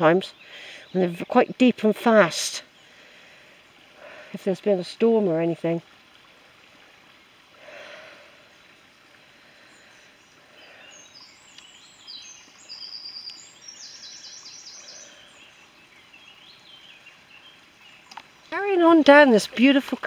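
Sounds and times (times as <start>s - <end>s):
stream running over stones: 0.0s - 20.0s
songbird singing high notes: 10.8s - 19.9s.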